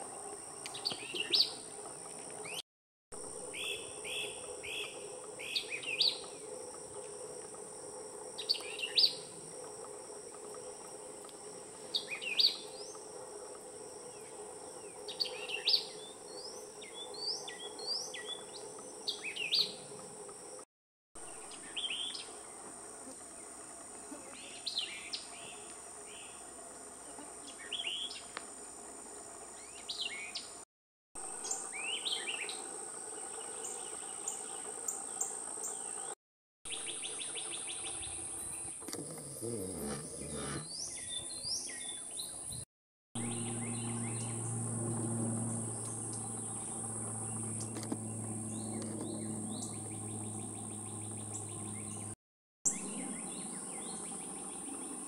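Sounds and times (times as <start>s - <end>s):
songbirds chirping: 0.0s - 2.6s, 3.4s - 20.6s, 21.2s - 30.6s, 31.3s - 42.6s, 43.2s - 55.0s
high-pitched insect drone: 43.2s - 52.0s.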